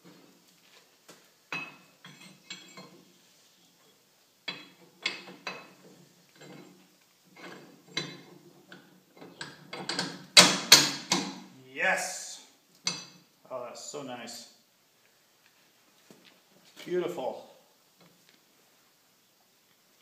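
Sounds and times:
metal clinking and knocking: 1.5s - 3.1s, 4.4s - 11.4s.

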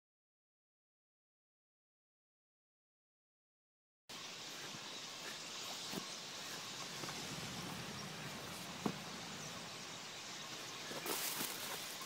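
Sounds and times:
flock of birds chattering: 4.1s - 12.0s.

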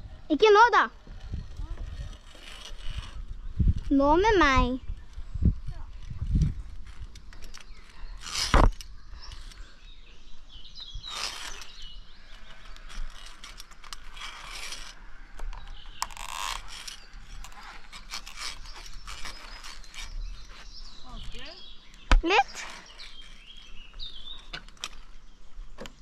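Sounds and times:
metal carabiners clicking and rattling: 1.2s - 4.0s, 5.7s - 9.7s, 11.1s - 20.2s.

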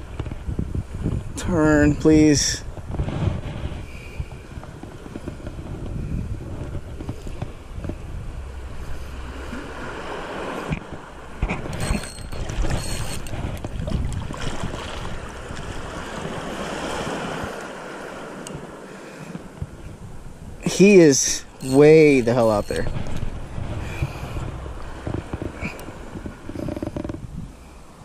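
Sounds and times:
surf washing: 0.0s - 28.0s
wind buffeting microphone: 0.0s - 28.0s
hands knocking on fishing reel: 24.0s - 27.2s.

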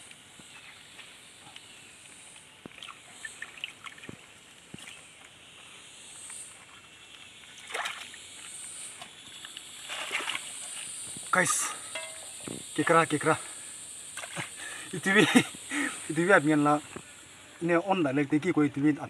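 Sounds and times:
high hiss: 4.3s - 19.0s
water sloshing: 7.5s - 8.2s, 9.8s - 10.8s.

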